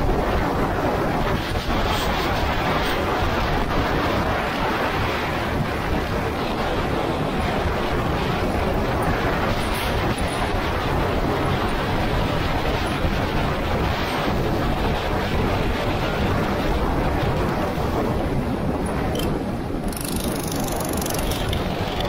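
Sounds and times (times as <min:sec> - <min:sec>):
wind buffeting microphone: 0:00.0 - 0:22.0
go-kart running: 0:19.0 - 0:22.0.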